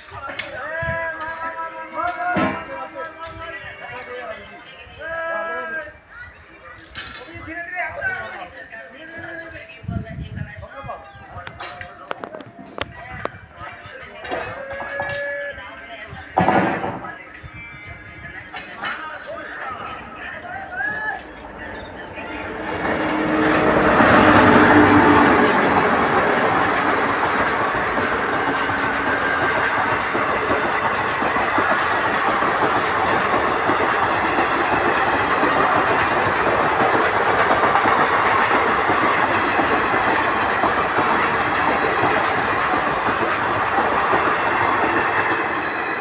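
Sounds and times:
train wheels on rails: 18.5 - 46.0.

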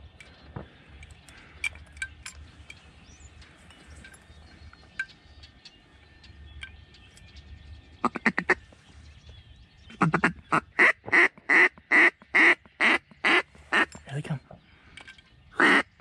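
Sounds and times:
duck call quacks: 15.6 - 15.9.

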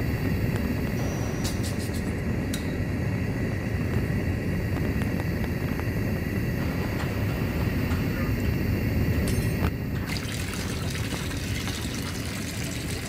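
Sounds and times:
faint steady whine: 0.0 - 13.0
gas burner flames roaring: 0.0 - 13.0.

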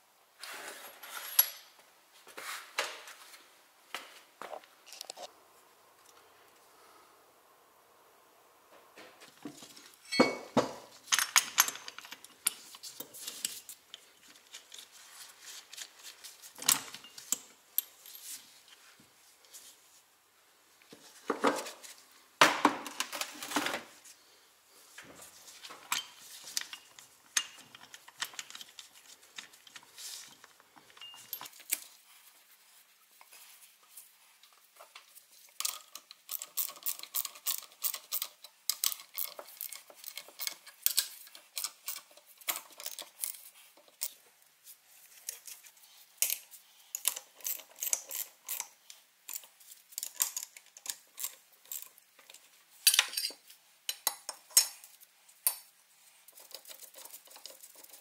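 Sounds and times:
metal tools clinking and tapping: 10.0 - 14.8, 25.8 - 31.9, 35.6 - 44.2, 49.3 - 55.7.

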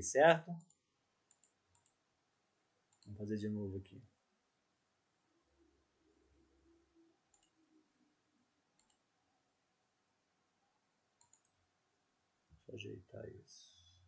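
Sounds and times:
faint computer mouse clicks: 0.6 - 2.0, 7.3 - 7.6, 8.8 - 9.0, 11.2 - 11.6.

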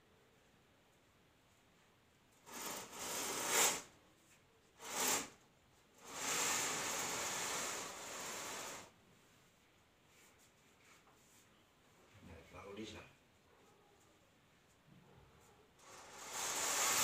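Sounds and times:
curtain runners hissing on rail: 2.4 - 3.9, 4.8 - 5.4, 6.0 - 9.0, 15.8 - 17.0.

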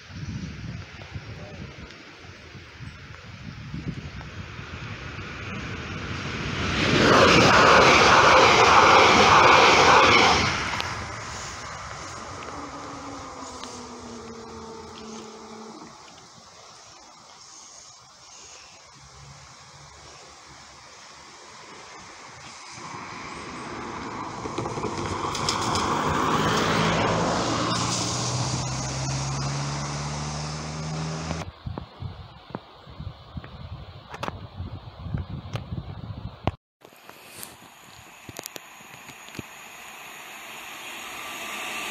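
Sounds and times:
car tyres hissing on wet road: 1.0 - 31.4, 36.9 - 41.9
low engine hum: 3.4 - 16.5, 22.7 - 31.6
passenger train passing at speed: 3.8 - 16.4, 21.7 - 31.0, 37.8 - 41.9.

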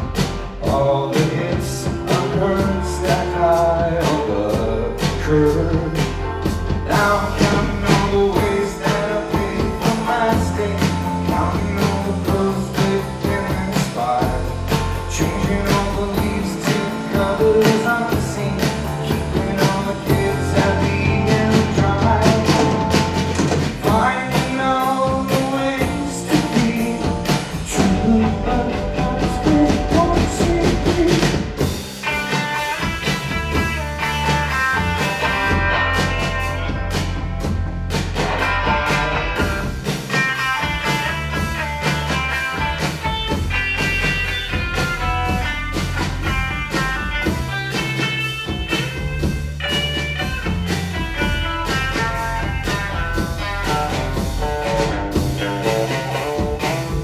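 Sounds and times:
person singing: 0.0 - 33.2
drum kit: 0.0 - 57.0
electric bass: 0.0 - 57.0
electric guitar: 0.0 - 57.0.

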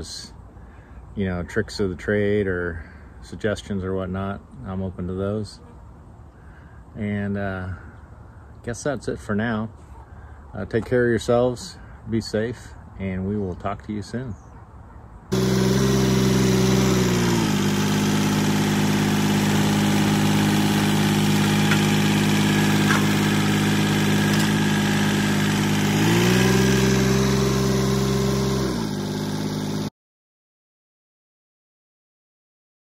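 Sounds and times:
tractor diesel engine running: 15.3 - 29.9.

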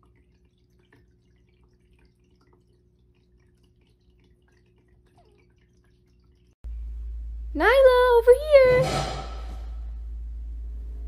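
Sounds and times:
water fountain trickling: 0.0 - 6.6
steady low hum: 6.6 - 11.0.

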